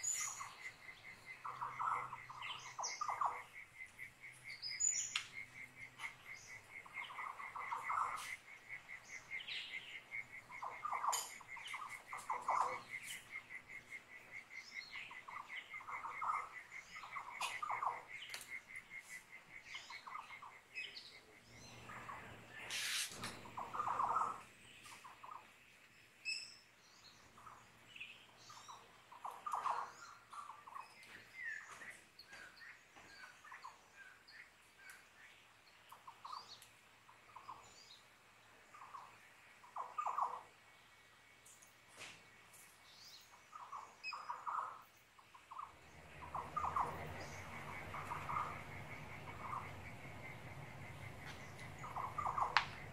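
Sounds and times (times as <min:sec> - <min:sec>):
cricket chirping: 0:00.0 - 0:25.5, 0:45.4 - 0:52.9
birds calling: 0:00.0 - 0:52.9.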